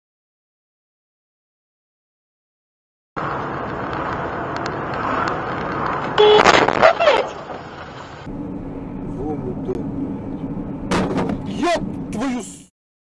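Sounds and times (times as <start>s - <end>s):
road and engine noise: 3.2s - 12.7s
steady low hum: 8.2s - 12.5s.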